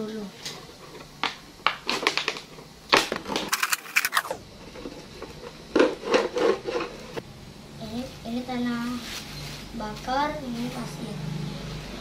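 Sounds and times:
knife cutting plastic bottle: 3.4s - 4.4s.

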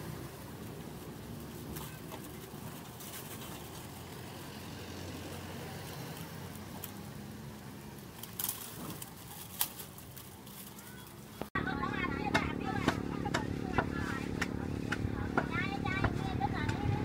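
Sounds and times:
oil bubbling and sizzling in wok: 0.0s - 6.1s
road traffic hum: 0.0s - 17.0s.

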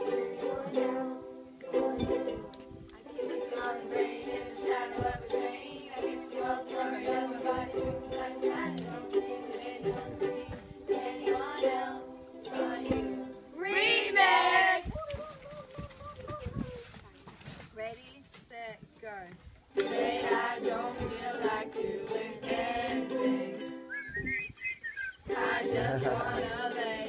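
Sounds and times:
ukuleles strumming chords: 0.0s - 14.8s, 19.7s - 24.1s, 25.2s - 27.0s
voices singing along: 0.0s - 15.6s, 19.8s - 27.0s.

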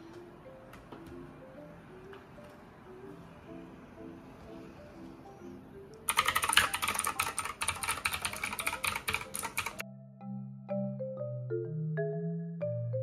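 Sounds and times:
marimba music: 0.0s - 6.2s, 9.7s - 13.0s
soft background music: 0.0s - 13.0s
mechanical keyboard typing: 6.1s - 9.8s.

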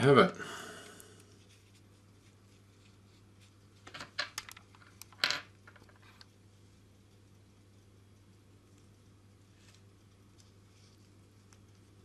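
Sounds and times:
quiet low hum: 0.0s - 12.0s
plastic parts clicking and rattling: 3.8s - 6.3s.

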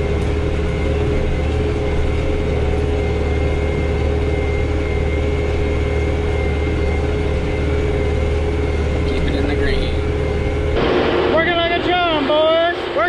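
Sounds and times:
tractor diesel engine droning: 0.0s - 13.0s
thin high whine: 10.2s - 13.0s.

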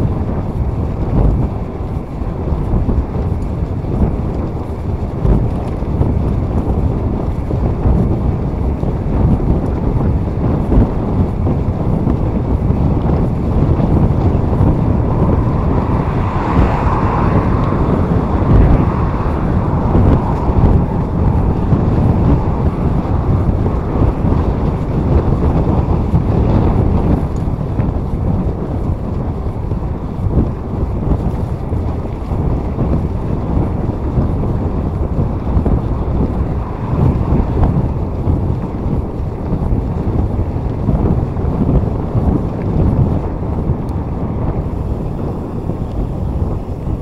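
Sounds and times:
wind buffeting microphone: 0.0s - 47.0s
vehicle passing: 13.2s - 29.1s, 30.0s - 39.8s.

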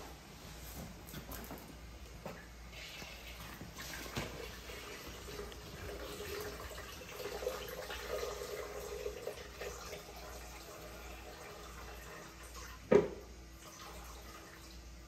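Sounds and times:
liquid trickling and dripping: 2.7s - 12.8s.

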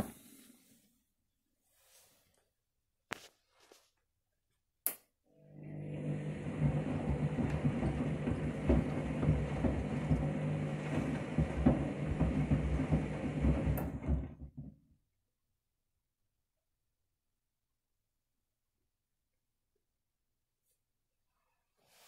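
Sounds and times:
washing machine motor humming: 5.3s - 14.8s.

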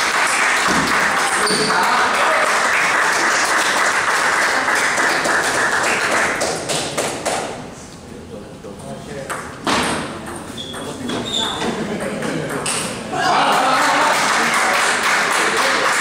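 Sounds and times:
crowd cheering: 0.0s - 6.0s, 13.1s - 16.0s
crowd clapping: 0.0s - 7.5s, 13.4s - 16.0s.

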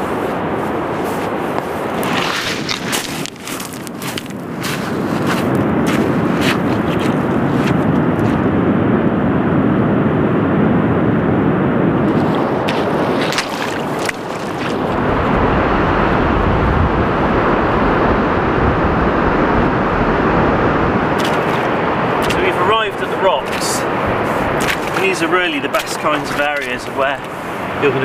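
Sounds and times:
sea surf: 0.0s - 8.6s, 12.0s - 28.0s
wind: 0.0s - 28.0s
wind rumble on microphone: 0.0s - 28.0s
footsteps on pebbles: 0.7s - 8.4s, 12.1s - 15.0s, 21.2s - 27.6s.

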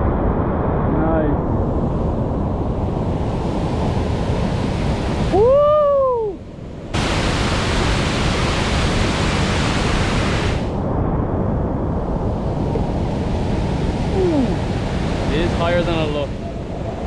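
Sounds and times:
whitewater rapid rushing: 7.0s - 10.7s, 14.0s - 16.8s.

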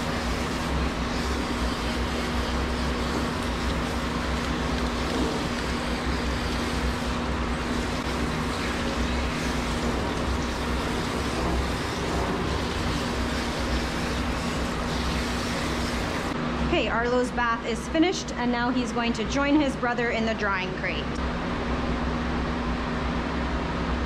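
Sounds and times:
water spraying and splashing: 0.0s - 16.4s
dryer blower hum: 0.0s - 17.8s.

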